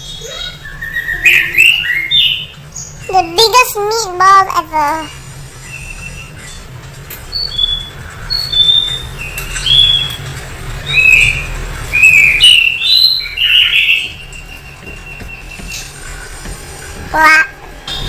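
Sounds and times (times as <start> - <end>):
high chirping whistles: 0.0 - 3.2, 5.6 - 6.6, 7.2 - 16.4.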